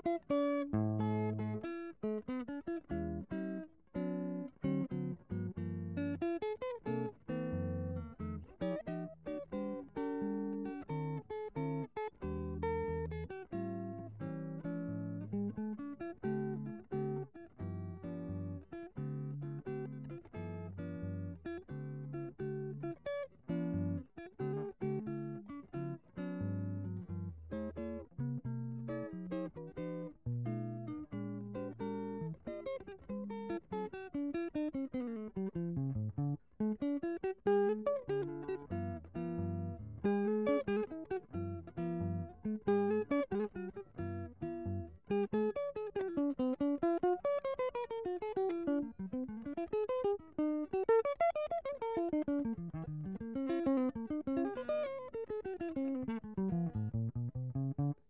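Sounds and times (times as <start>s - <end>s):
plucked guitar music: 0.0s - 58.0s.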